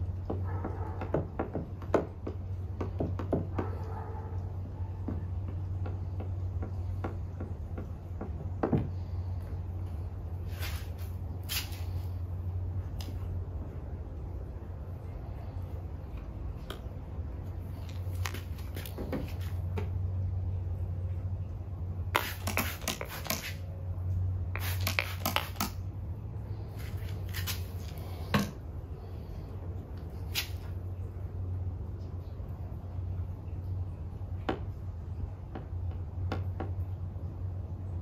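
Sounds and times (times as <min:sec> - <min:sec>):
steady low hum: 0:00.0 - 0:38.0
spray bottle spritzing: 0:22.2 - 0:23.6, 0:24.6 - 0:25.8
handling clicks and taps: 0:24.6 - 0:25.8.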